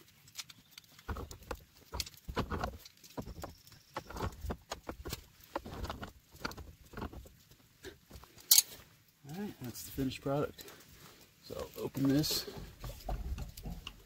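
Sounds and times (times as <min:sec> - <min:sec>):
wrench clicking and scraping on metal: 0:08.4 - 0:08.8.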